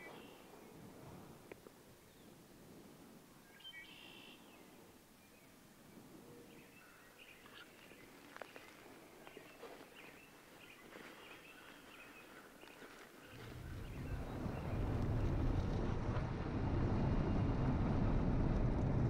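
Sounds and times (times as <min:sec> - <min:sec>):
birds chirping: 0:00.0 - 0:00.9, 0:02.0 - 0:02.5, 0:03.3 - 0:15.5
low rumble: 0:13.4 - 0:19.0.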